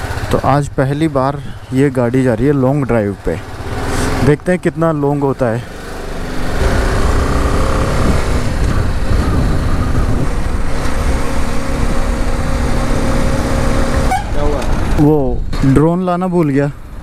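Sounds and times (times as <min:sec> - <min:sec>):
motorcycle engine running: 0:00.0 - 0:15.0
wind noise on microphone: 0:06.6 - 0:15.8.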